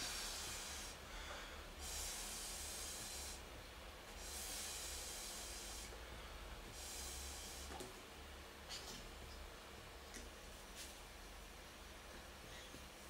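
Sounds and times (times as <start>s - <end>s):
breathy air hissing: 0.0s - 3.5s, 4.1s - 7.8s.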